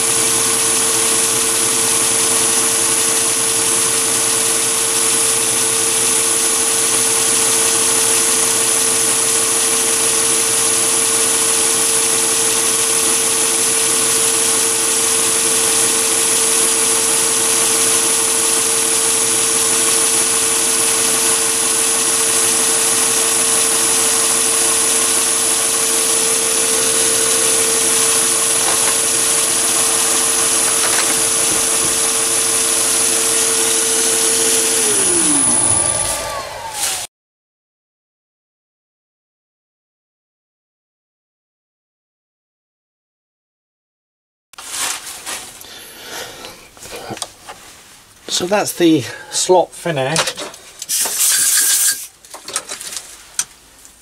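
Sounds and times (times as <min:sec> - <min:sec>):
end mill cutting metal: 0:00.0 - 0:37.0
high whine: 0:00.0 - 0:37.1
lathe machine hum: 0:00.0 - 0:37.1.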